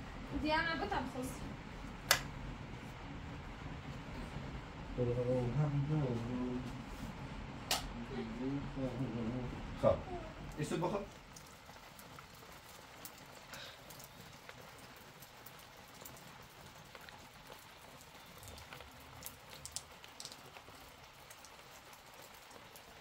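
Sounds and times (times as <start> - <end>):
light rain hiss: 0.0 - 23.0.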